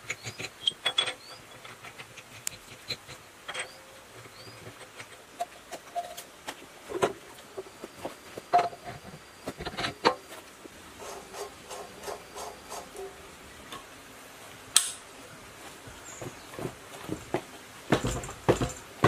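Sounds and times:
metallic clinks and knocks: 0:00.0 - 0:06.2, 0:17.9 - 0:19.0.

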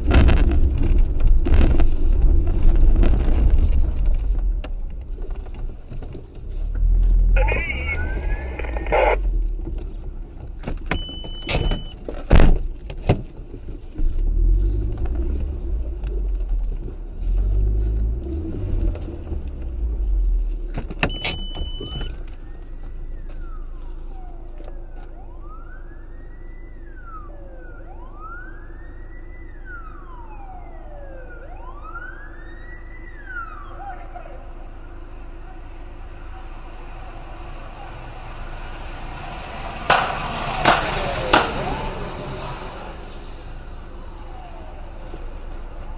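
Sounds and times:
low vehicle rumble: 0:00.0 - 0:45.9
police siren wailing: 0:06.8 - 0:09.4, 0:21.8 - 0:45.9.

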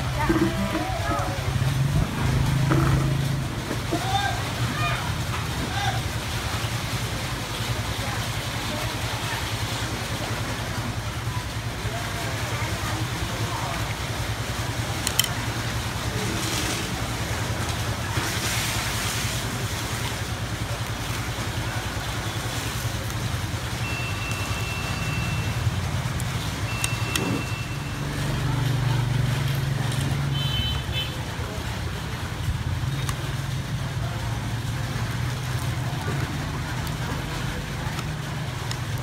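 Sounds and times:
traffic hum: 0:00.0 - 0:39.0
sharp clicks: 0:15.0 - 0:15.4.

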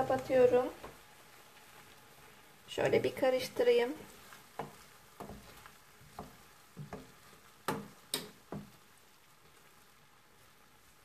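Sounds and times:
wooden spoon knocking in pot: 0:04.0 - 0:08.8.

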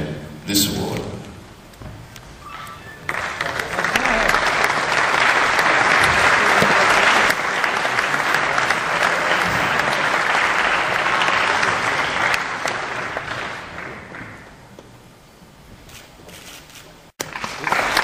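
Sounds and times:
audience applauding: 0:02.5 - 0:14.6, 0:17.2 - 0:18.0.

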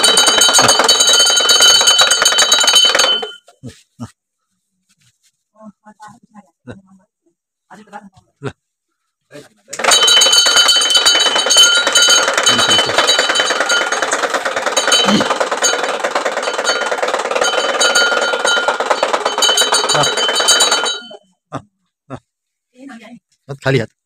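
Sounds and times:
bells clanging rapidly: 0:00.0 - 0:03.5, 0:09.8 - 0:21.2.

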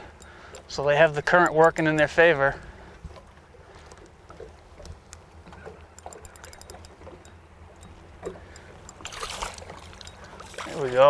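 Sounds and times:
water lapping against boat: 0:00.0 - 0:11.0
faint rapid clicks: 0:03.8 - 0:09.0.

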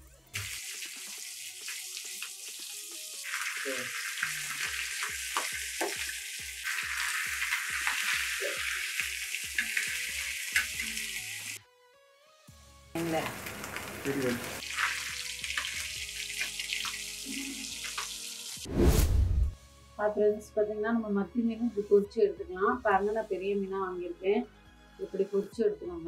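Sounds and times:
faint background music with beat: 0:00.0 - 0:18.6, 0:19.6 - 0:26.0
fish sizzling in hot oil: 0:00.4 - 0:11.6, 0:13.0 - 0:18.7.

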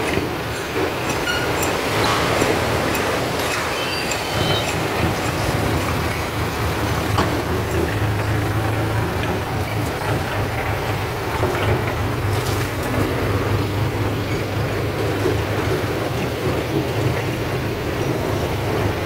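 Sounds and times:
diesel engine idling: 0:04.2 - 0:19.0.

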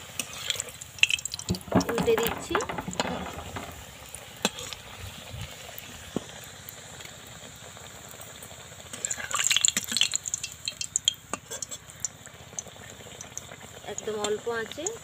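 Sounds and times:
patty sizzling in hot oil: 0:00.0 - 0:15.0
spatula clicking and scraping pan: 0:00.1 - 0:04.8, 0:09.5 - 0:12.2.

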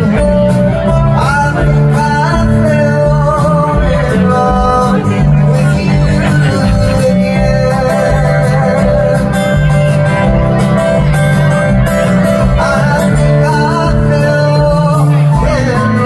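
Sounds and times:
man singing: 0:00.0 - 0:11.1, 0:11.7 - 0:16.0
acoustic guitar strumming: 0:00.0 - 0:16.0
bass and drums: 0:00.0 - 0:16.0.

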